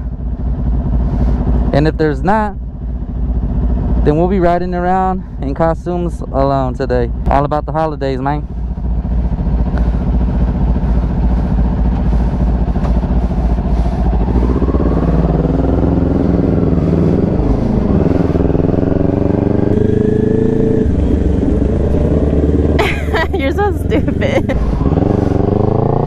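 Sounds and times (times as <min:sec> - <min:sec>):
motorcycle engine: 0:00.0 - 0:26.0.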